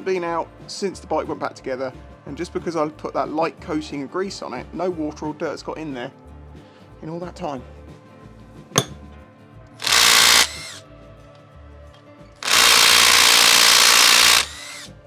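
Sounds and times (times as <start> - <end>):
power tool whirring: 9.8 - 10.8, 12.4 - 15.0.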